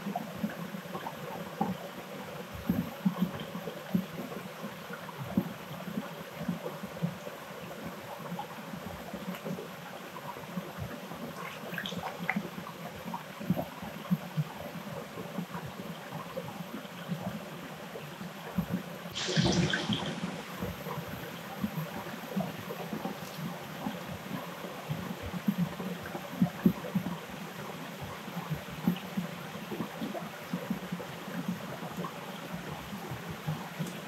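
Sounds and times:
water trickling and gurgling: 0.0 - 34.0
small knocks and splashes: 11.4 - 12.5, 18.5 - 23.5.

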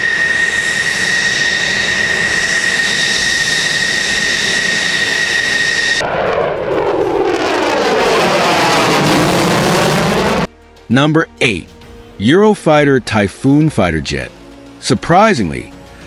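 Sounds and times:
jet engine whine on the ground: 0.0 - 10.5
jet plane passing overhead: 0.0 - 10.5.

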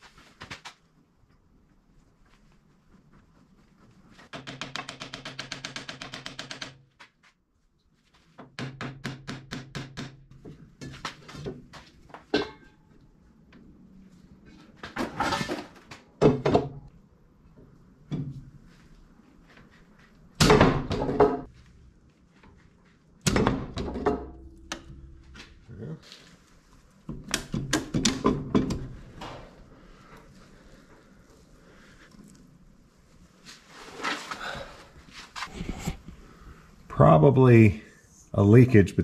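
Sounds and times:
metal clanks and knocks: 12.2 - 12.9, 23.3 - 25.4, 27.1 - 29.6.

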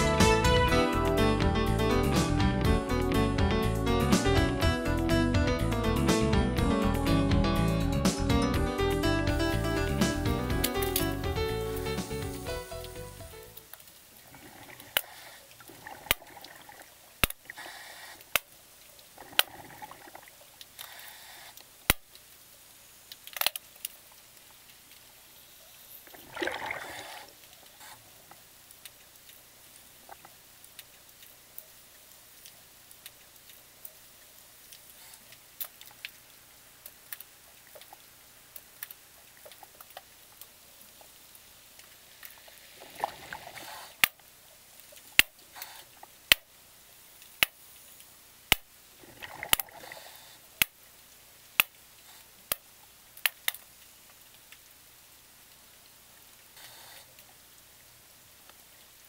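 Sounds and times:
faint underwater hiss: 9.5 - 59.0
gurgling rush of bubbles: 14.2 - 15.0, 15.6 - 17.0, 19.2 - 20.4, 26.1 - 27.4, 42.5 - 43.9, 49.0 - 50.2.

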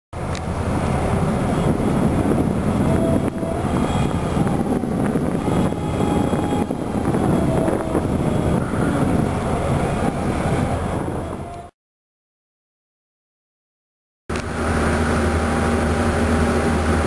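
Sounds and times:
harbour machinery rumble: 0.2 - 11.7, 14.3 - 17.0
wind buffeting microphone: 0.2 - 11.7.

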